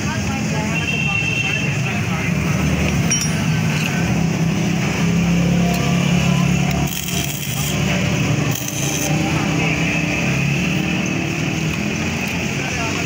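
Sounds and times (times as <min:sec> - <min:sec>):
welder hum: 0:06.5 - 0:09.2
welding arc crackle: 0:06.7 - 0:09.1.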